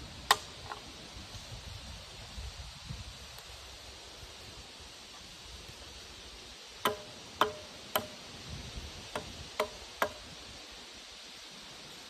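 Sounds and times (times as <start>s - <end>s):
hatchet knocking on log: 6.8s - 8.2s, 9.1s - 10.2s.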